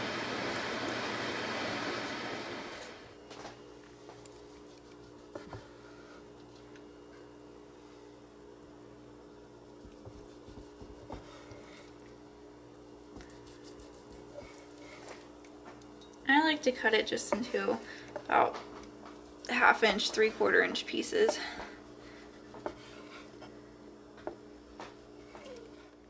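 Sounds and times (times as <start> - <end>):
low kitchen hum: 0.0 - 26.0.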